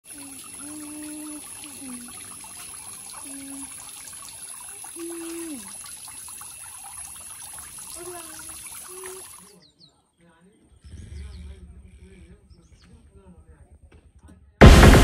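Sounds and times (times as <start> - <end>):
fountain water splashing: 0.0 - 9.6.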